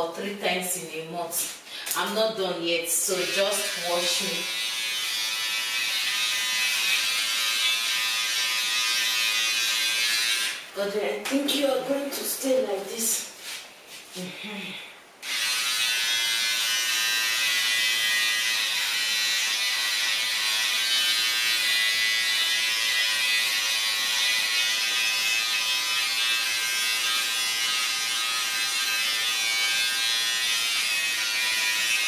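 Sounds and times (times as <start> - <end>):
electric hair clippers buzzing: 3.0 - 10.7, 15.2 - 32.0.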